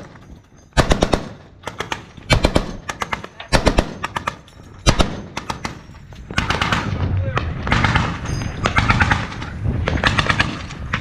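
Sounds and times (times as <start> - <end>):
gunshots echoing: 0.8 - 9.4.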